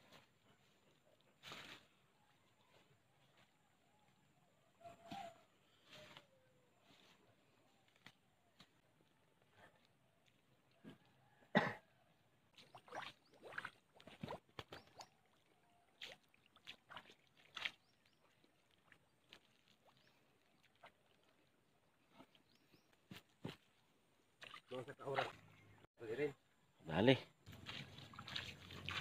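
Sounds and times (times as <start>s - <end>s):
footsteps splashing through mud: 12.6s - 21.5s, 22.2s - 25.6s, 27.4s - 29.0s.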